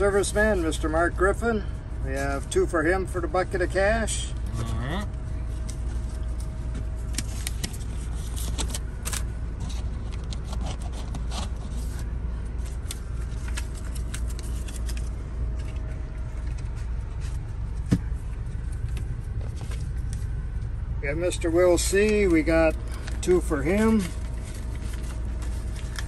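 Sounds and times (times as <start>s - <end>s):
air conditioning hum: 0.0s - 26.0s
paper rustling: 5.6s - 20.4s, 21.9s - 26.0s.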